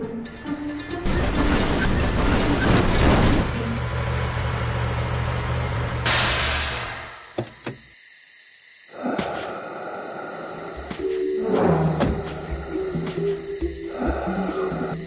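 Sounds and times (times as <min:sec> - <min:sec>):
lorry engine rumbling: 0:00.0 - 0:07.9.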